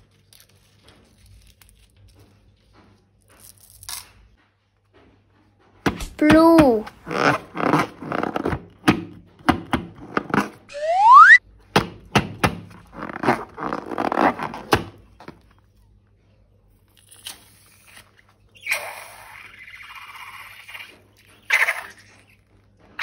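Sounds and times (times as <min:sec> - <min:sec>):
brief rising whistle: 0:10.7 - 0:11.4.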